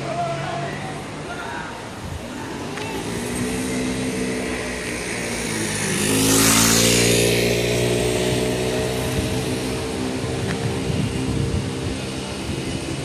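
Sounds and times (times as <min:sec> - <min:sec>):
vehicle passing by: 0:02.8 - 0:13.0.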